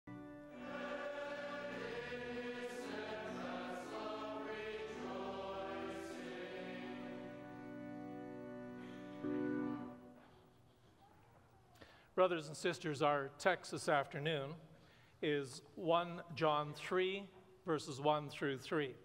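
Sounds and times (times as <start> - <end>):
congregation singing: 0.3 - 10.1.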